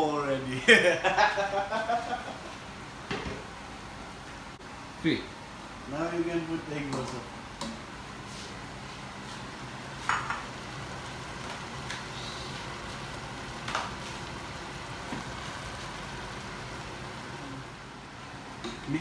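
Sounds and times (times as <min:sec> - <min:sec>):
pot simmering and bubbling: 0:08.9 - 0:19.0.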